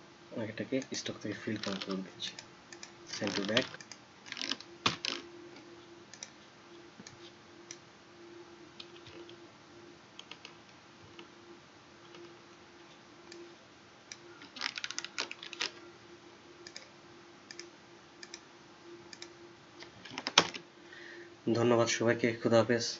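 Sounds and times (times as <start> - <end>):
faint steady hum: 0.0 - 22.9
computer keyboard clicks: 10.2 - 11.3, 14.1 - 15.8, 16.7 - 16.9.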